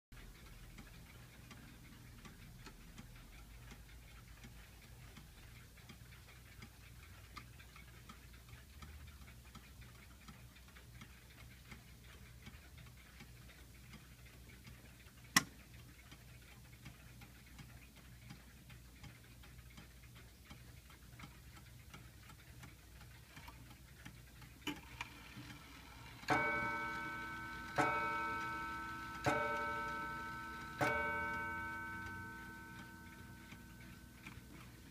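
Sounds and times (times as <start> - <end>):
mantel clock ticking: 0.1 - 34.9
clock striking: 24.6 - 34.9.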